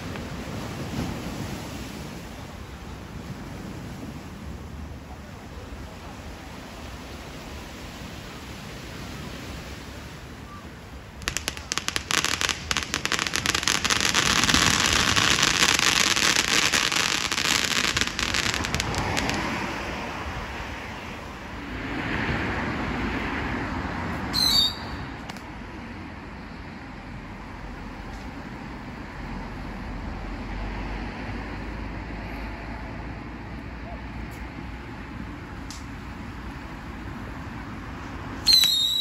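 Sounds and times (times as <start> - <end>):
loud hiss of fireworks: 0.0 - 29.3, 34.2 - 39.0
fireworks crackling: 11.1 - 20.6, 38.4 - 39.0
high whistle: 24.3 - 25.0, 38.4 - 39.0.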